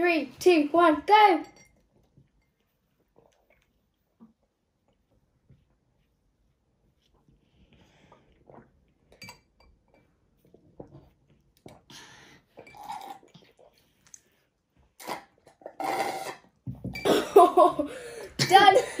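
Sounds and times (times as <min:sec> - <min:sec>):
glasses clinking: 0:01.4 - 0:01.8
sipping through straws: 0:11.7 - 0:16.6.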